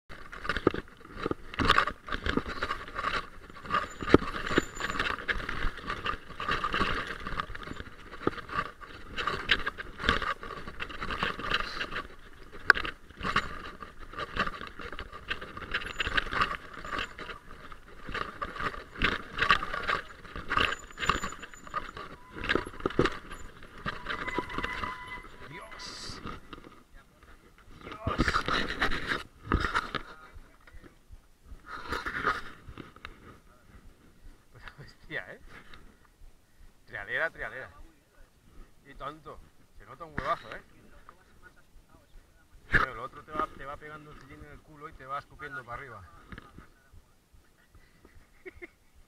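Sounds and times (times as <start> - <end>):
tyres crunching on loose stones: 0.1 - 31.0, 38.9 - 46.8
bike rattling and jangling: 0.1 - 37.8, 38.5 - 42.1, 42.7 - 46.7, 47.6 - 49.0.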